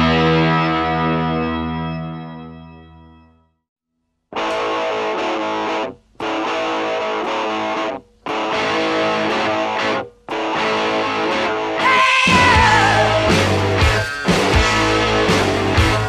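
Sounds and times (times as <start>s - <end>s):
distorted electric guitar chords: 0.0s - 3.4s, 4.3s - 16.0s
rock band playing: 4.4s - 16.0s.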